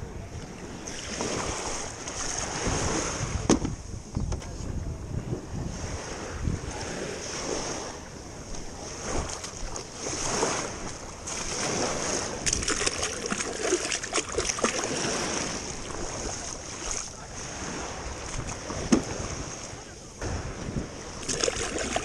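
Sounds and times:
waves lapping around a kayak: 0:00.0 - 0:22.0
wind on microphone: 0:00.0 - 0:22.0
sharp splashes and crackles: 0:09.1 - 0:17.1, 0:21.1 - 0:22.0.

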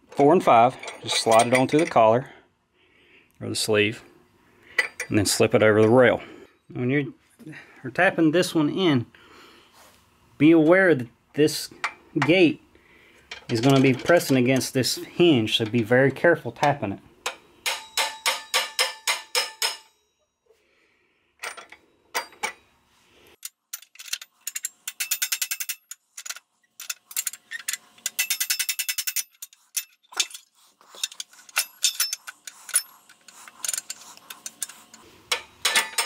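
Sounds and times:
hammer tapping steel rail: 0:17.3 - 0:19.9.

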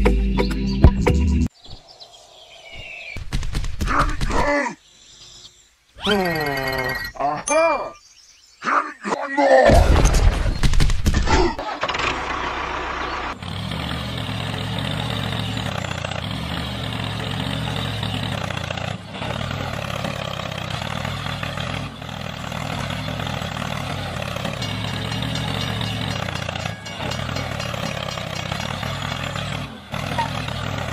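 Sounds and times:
tractor engine starting and running: 0:11.5 - 0:30.9.

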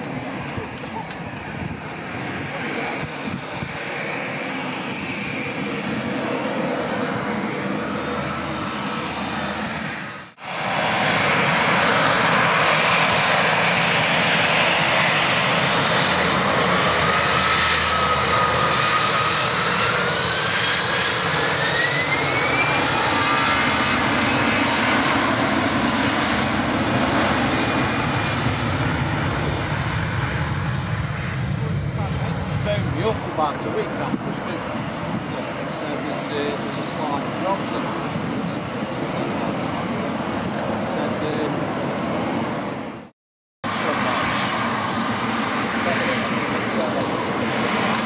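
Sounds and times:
jet engines at takeoff power: 0:00.0 - 0:48.0
jet engines running: 0:00.0 - 0:48.0.

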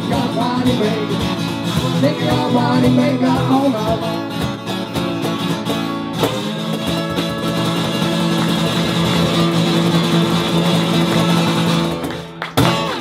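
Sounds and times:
acoustic guitar strumming: 0:00.0 - 0:13.0
cajon drum: 0:00.0 - 0:13.0.

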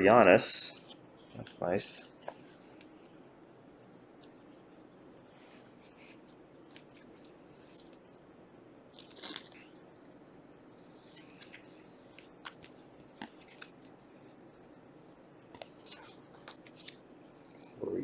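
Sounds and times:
cards and plastic rustling: 0:06.6 - 0:08.2, 0:08.9 - 0:09.7, 0:11.1 - 0:14.0
plastic sleeve crinkling: 0:08.9 - 0:09.7.

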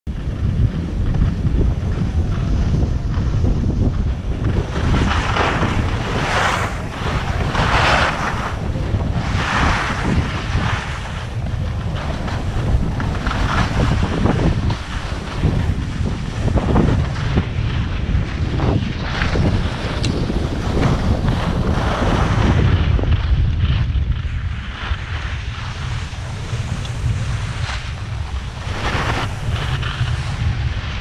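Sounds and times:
wind rumbling on microphone: 0:00.0 - 0:31.0
skis scraping over snow: 0:00.1 - 0:31.0.

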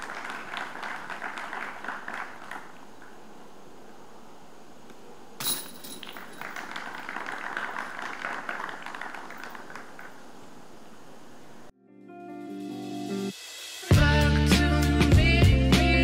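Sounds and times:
spectators applauding: 0:00.0 - 0:03.2, 0:06.1 - 0:10.4
disc clinking metal chains: 0:05.4 - 0:06.8.

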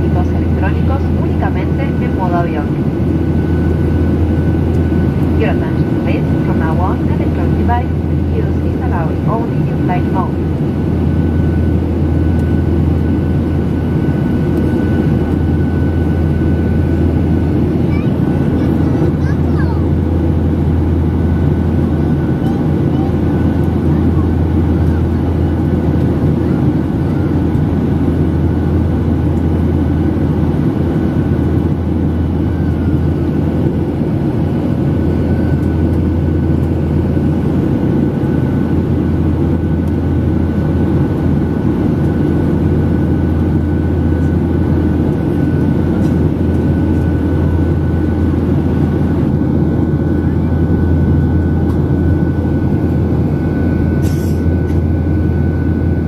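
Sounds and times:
airliner cabin drone: 0:00.0 - 0:56.0.

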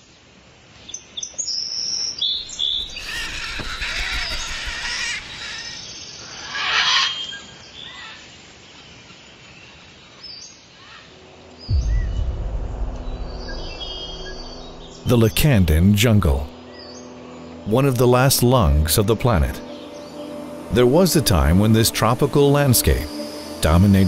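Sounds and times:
birds chirping and calling: 0:02.2 - 0:08.2, 0:16.2 - 0:24.0
loud burst: 0:11.7 - 0:16.6.

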